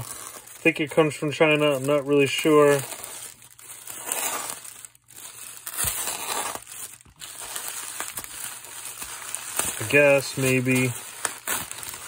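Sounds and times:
plastic mailer crinkling: 0.0s - 12.0s.

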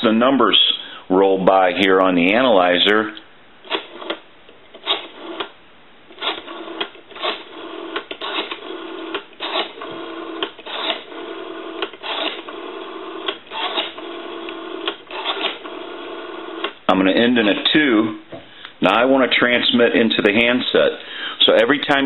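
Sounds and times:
rotary phone dial clicking: 6.2s - 15.8s
buzzing telephone line tone: 6.3s - 16.8s.

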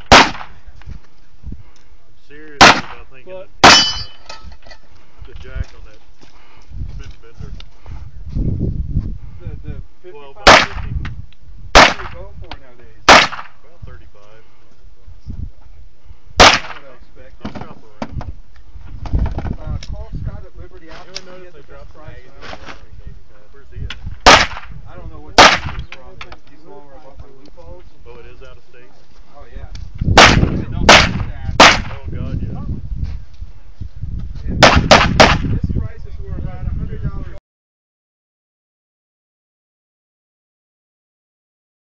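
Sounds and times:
handgun shots: 0.0s - 0.6s, 2.6s - 3.0s, 3.6s - 4.2s, 10.5s - 10.9s, 11.8s - 12.2s, 13.1s - 13.5s, 16.4s - 16.8s, 24.2s - 24.7s, 30.2s - 32.0s, 34.6s - 35.5s.

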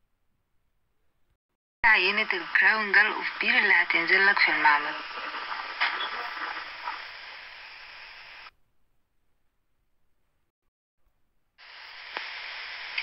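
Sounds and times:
microphone hiss: 1.9s - 8.6s, 11.6s - 13.0s.

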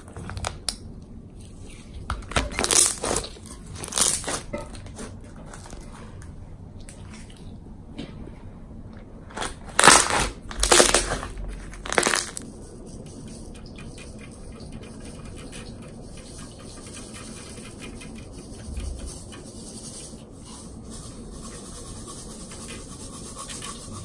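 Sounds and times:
slime squishing: 0.0s - 7.7s, 9.2s - 19.1s.

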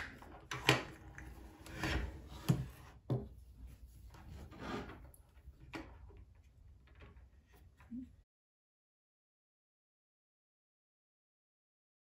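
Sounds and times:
cables rubbing and scraping on desk: 1.2s - 5.2s.

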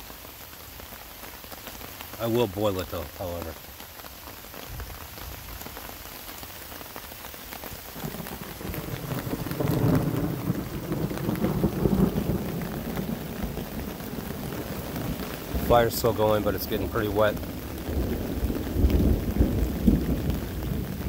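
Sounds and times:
rain drops on a tarp: 0.0s - 21.0s
thunder rumbling: 8.0s - 21.0s.

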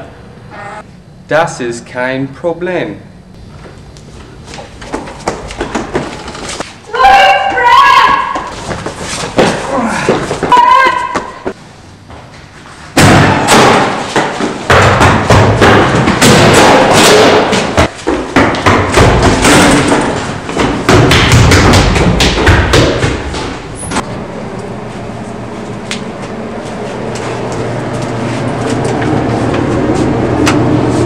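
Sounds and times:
loud thumps and bangs: 13.0s - 24.0s
low hum: 23.1s - 31.0s.

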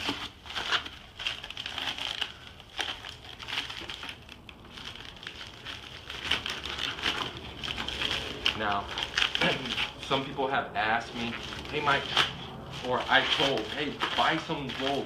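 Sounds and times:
foam packing wrap crinkling: 0.0s - 15.0s.

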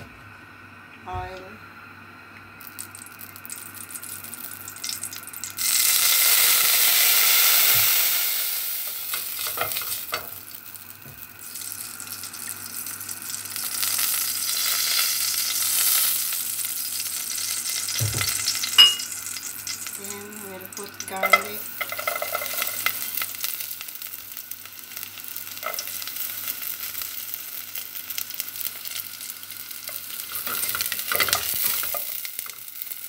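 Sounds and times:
oil sizzling and crackling: 2.4s - 33.0s.

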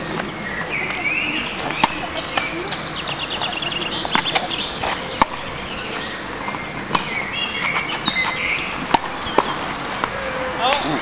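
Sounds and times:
birds chirping: 0.0s - 11.0s
tennis ball hitting racket: 1.6s - 2.7s, 3.3s - 5.5s, 6.4s - 11.0s.

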